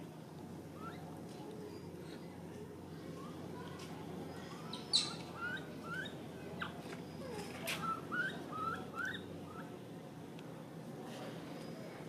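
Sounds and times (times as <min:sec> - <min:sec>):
animal chirping calls: 0:04.6 - 0:09.7.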